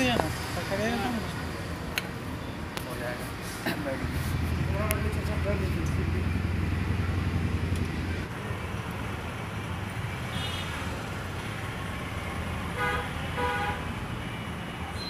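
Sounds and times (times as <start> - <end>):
vehicle engine droning: 3.8 - 15.0
vehicle horn honking: 10.3 - 10.8, 12.8 - 13.8.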